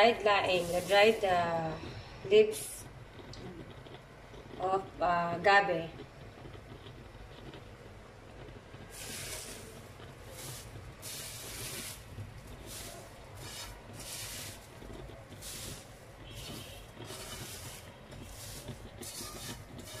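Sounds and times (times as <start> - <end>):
dried leaves rustling and crackling: 0.2 - 1.5, 8.9 - 20.0.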